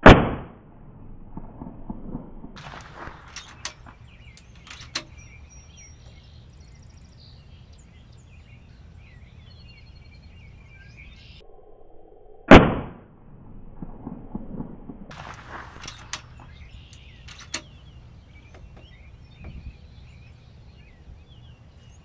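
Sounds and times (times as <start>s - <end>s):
air rifle shot: 0.0s - 0.6s, 12.5s - 13.0s
faint bird chirps: 3.3s - 12.4s.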